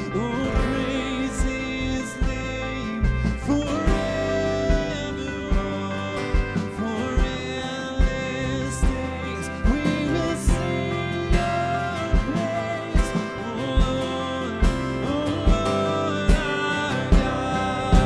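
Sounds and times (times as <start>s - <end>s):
acoustic guitar: 0.0s - 18.0s
people singing: 0.0s - 18.0s.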